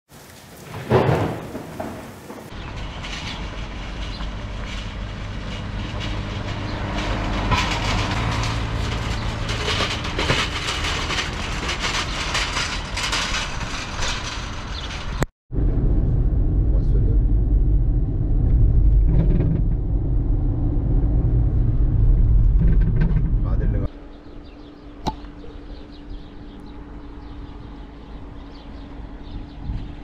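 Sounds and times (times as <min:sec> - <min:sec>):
vehicle low rumble: 0:01.2 - 0:30.0
rattling and knocking: 0:02.5 - 0:15.3, 0:22.2 - 0:23.8.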